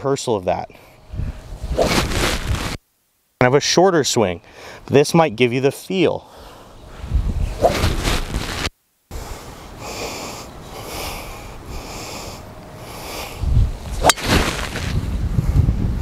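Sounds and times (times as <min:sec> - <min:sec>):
wind rumbling on microphone: 0:01.1 - 0:02.8, 0:06.8 - 0:08.7, 0:13.3 - 0:16.0
golf club striking ball: 0:14.0 - 0:14.8.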